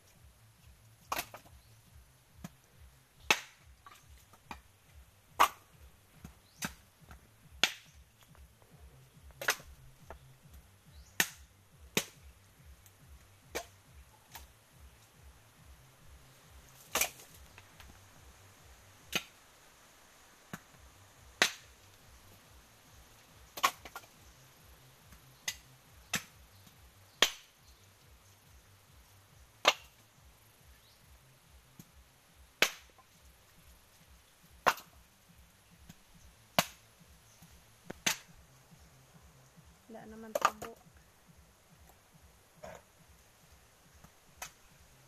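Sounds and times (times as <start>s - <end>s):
coconut halves knocking on heap: 1.0s - 1.5s, 3.2s - 4.7s, 5.3s - 8.3s, 9.3s - 10.2s, 11.2s - 12.2s, 13.4s - 14.5s, 16.6s - 18.0s, 20.5s - 21.8s, 23.4s - 24.2s, 25.1s - 27.6s, 29.6s - 30.0s, 32.5s - 33.0s, 34.6s - 35.0s, 35.8s - 38.4s, 40.1s - 40.8s.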